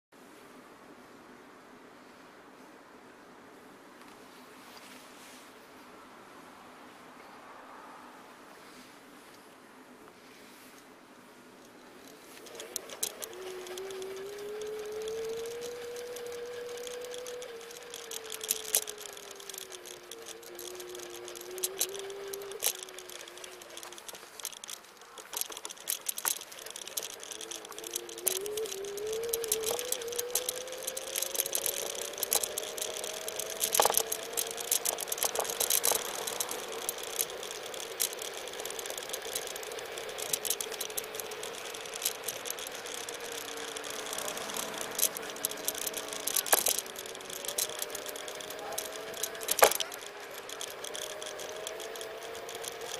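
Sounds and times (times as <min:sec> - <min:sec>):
scooter frame rattling and clicking: 0:11.6 - 0:52.9
electric motor whining: 0:12.4 - 0:52.9.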